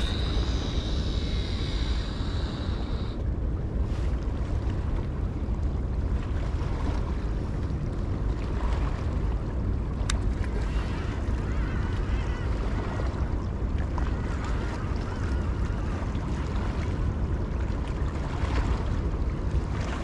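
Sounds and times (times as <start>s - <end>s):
fishing reel spool whirring: 0.0s - 3.3s
wind rumbling on microphone: 0.0s - 20.0s.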